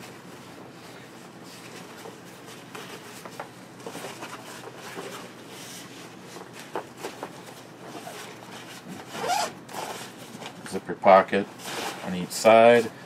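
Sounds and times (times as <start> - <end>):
nylon fabric rustling: 3.9 - 10.5.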